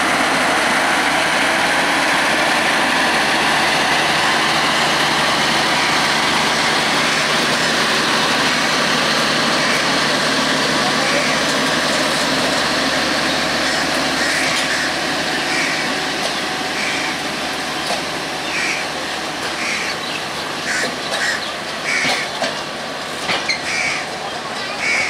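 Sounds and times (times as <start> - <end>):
train rumbling and rolling: 0.0 - 25.0
crows cawing: 13.6 - 16.1, 16.7 - 17.2, 18.4 - 18.9, 19.6 - 20.0, 20.6 - 22.3, 23.6 - 24.1, 24.8 - 25.0.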